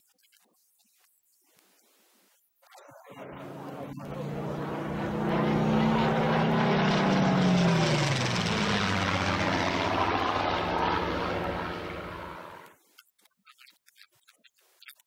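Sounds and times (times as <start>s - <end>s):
propeller aircraft flying past: 3.0s - 12.8s.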